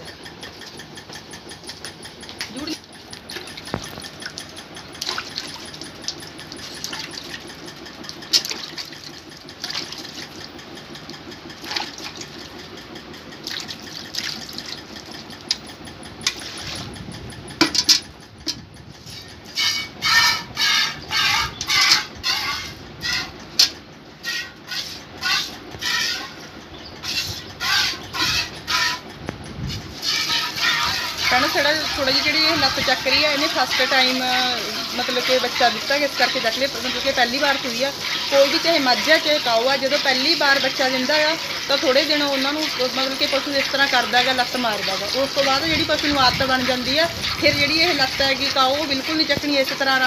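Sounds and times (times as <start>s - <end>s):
milk squirting into steel bucket: 30.0s - 49.4s.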